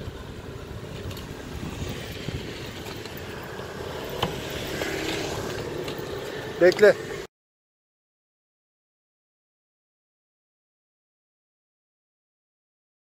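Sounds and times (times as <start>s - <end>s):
motor vehicle: 0.0s - 7.3s
street traffic: 0.0s - 7.3s.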